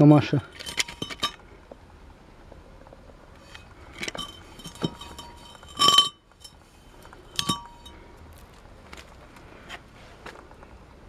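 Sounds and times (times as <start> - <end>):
metal cylinder liner clinking: 0.4 - 1.4, 3.4 - 8.0.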